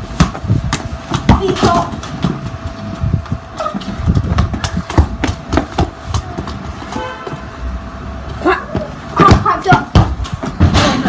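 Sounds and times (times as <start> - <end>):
footsteps on stone patio: 0.0 - 11.0
steady low rumble: 0.0 - 11.0
football bouncing on stone: 0.1 - 2.5, 4.1 - 7.1, 8.8 - 10.8.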